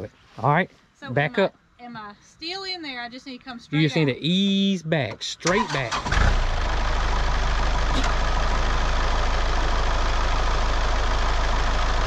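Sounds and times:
tractor engine running low: 5.5s - 12.0s.

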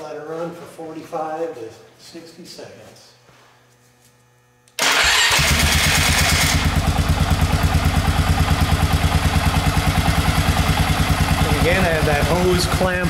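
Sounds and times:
engine starting and idling: 4.8s - 13.0s.

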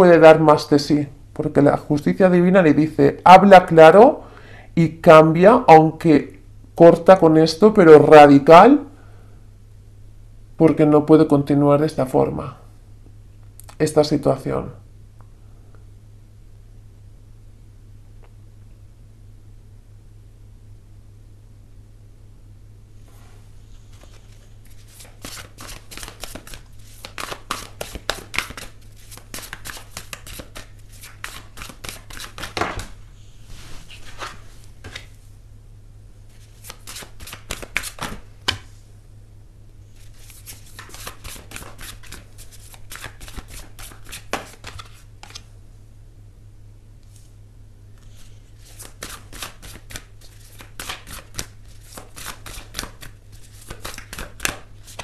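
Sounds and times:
cards being shuffled by hand: 23.8s - 33.0s, 33.6s - 35.2s, 36.3s - 38.8s, 39.9s - 45.5s, 48.0s - 55.0s.

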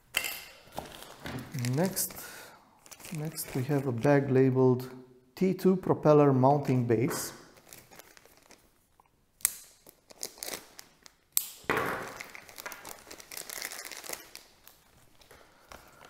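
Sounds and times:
plastic bag crinkling: 0.8s - 2.2s, 2.8s - 4.1s, 7.4s - 8.9s, 9.8s - 11.2s, 12.0s - 16.0s.

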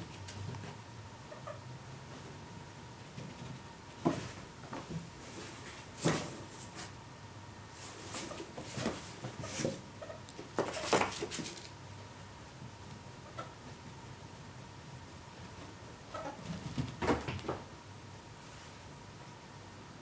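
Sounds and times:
animals scuffling: 7.7s - 11.8s.

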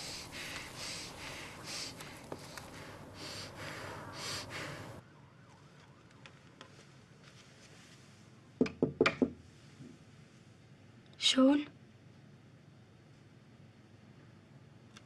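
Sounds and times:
heavy shaky breathing: 0.0s - 5.0s
sniffing: 0.0s - 5.0s.

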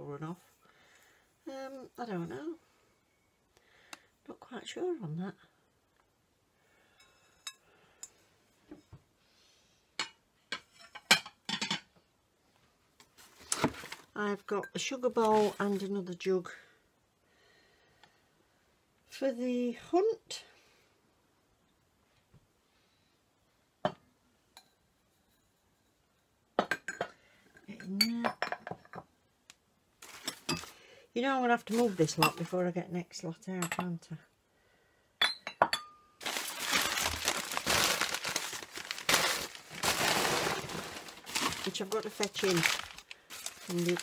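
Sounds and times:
glass and china clinking: 35.2s - 36.1s.

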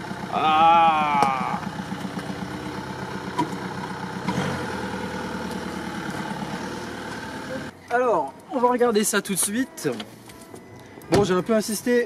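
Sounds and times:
car engine idling: 0.0s - 7.8s.

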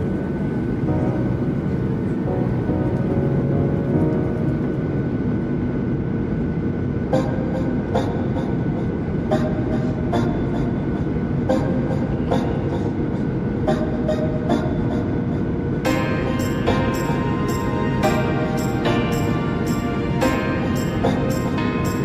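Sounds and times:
airliner cabin rumble: 0.0s - 22.0s
background music with a beat: 15.9s - 22.0s.

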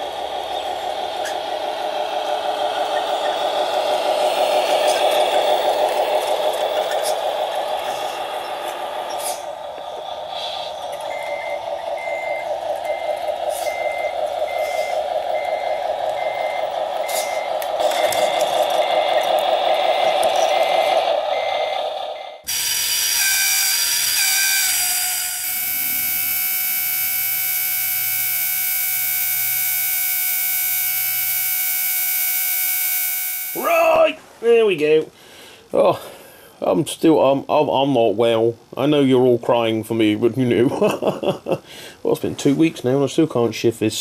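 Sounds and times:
electronic diesel engine sound: 0.0s - 34.0s
reversing alarm beeping: 10.8s - 33.7s
electronic buzzing drone: 22.5s - 33.6s.

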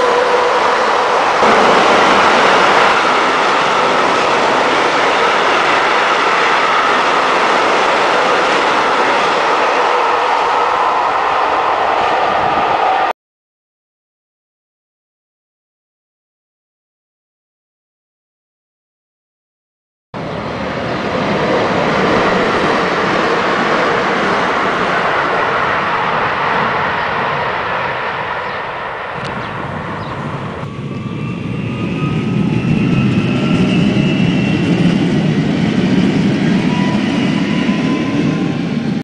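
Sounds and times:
train rolling past: 0.0s - 13.1s, 20.2s - 39.0s
train rumble with rising whines: 0.0s - 13.1s, 20.2s - 39.0s.

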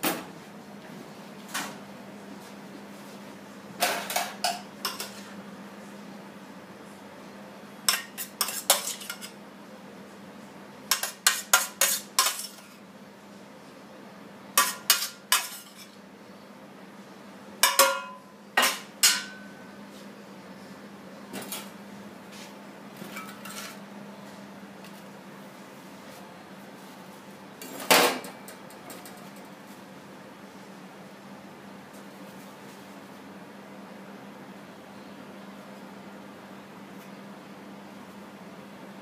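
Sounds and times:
metal spoon clinking on plates: 3.8s - 5.2s, 7.9s - 9.4s, 10.9s - 12.7s, 14.6s - 15.9s, 17.6s - 19.6s.

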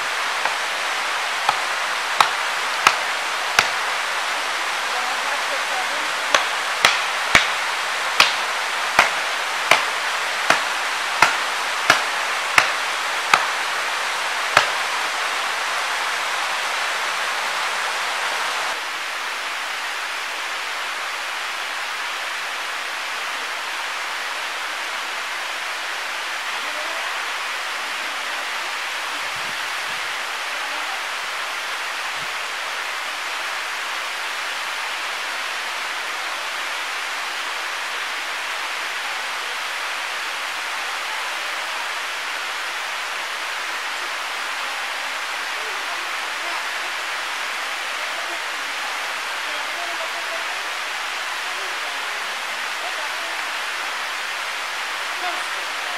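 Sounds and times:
waterfall and stream rushing: 0.0s - 55.9s
axe chopping wood: 2.2s - 3.8s, 6.3s - 7.6s, 8.2s - 13.6s, 14.5s - 14.8s.

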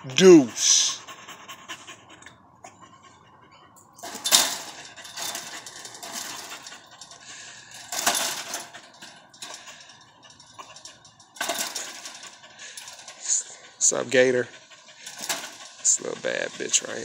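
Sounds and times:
chain-link fence rattling: 3.9s - 17.0s.

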